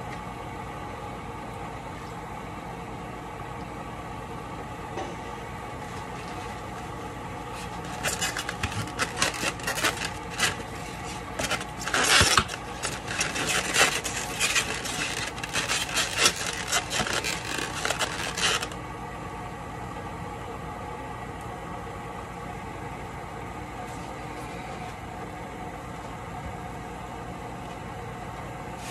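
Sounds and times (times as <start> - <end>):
foam containers rubbing and scraping: 5.8 - 18.8.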